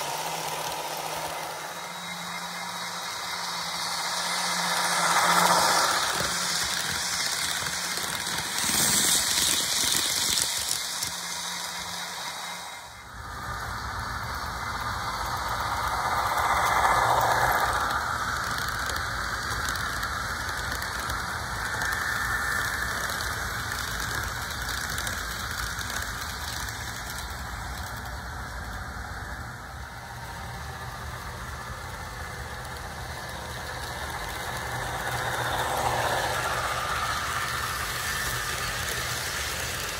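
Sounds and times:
model train diesel engine sound: 0.0 - 39.9.

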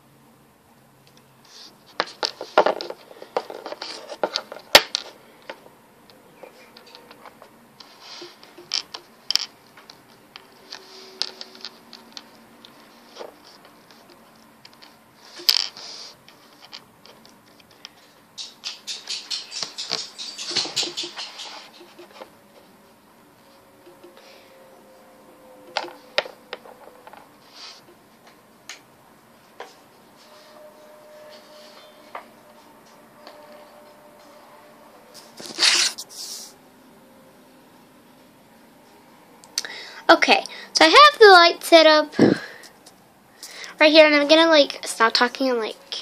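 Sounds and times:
objects scraping and rustling: 1.4 - 5.7, 6.3 - 22.8, 23.4 - 28.3, 29.4 - 36.6.

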